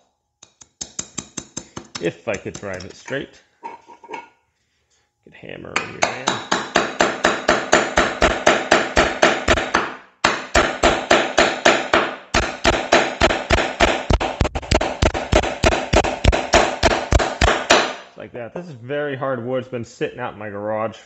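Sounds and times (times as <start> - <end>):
hammer driving nail into wood: 0.4 - 2.9, 6.0 - 18.0.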